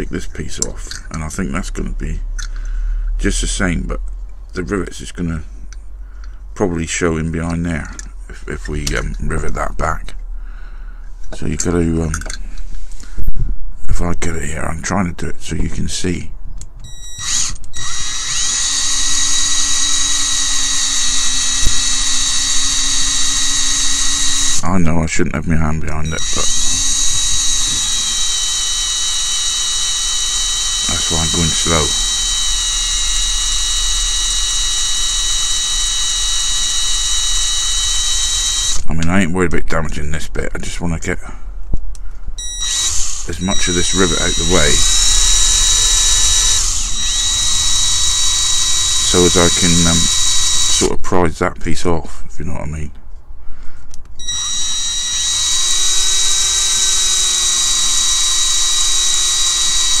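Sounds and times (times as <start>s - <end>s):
power drill whining: 16.8s - 24.7s, 26.1s - 38.9s, 42.4s - 51.0s, 54.2s - 60.0s.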